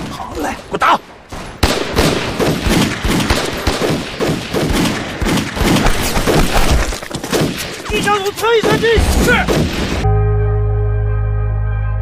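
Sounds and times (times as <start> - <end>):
dense gunfire: 1.3 - 10.0.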